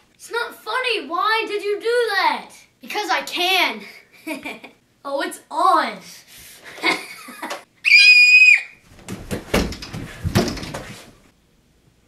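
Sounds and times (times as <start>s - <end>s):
child screaming: 7.8s - 8.8s
thumps and scuffling on couch: 8.8s - 11.3s.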